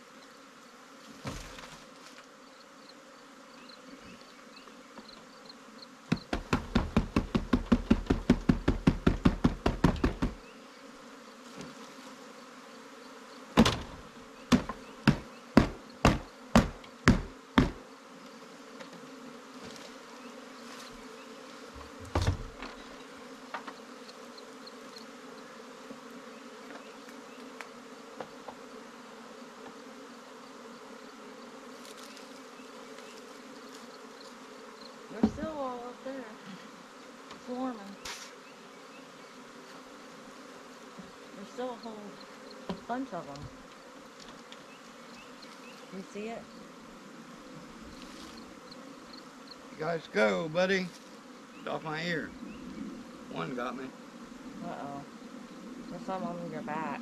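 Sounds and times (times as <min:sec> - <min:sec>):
bee swarm buzzing: 0:00.0 - 0:57.0
loud knocks: 0:06.1 - 0:10.4, 0:13.6 - 0:17.8.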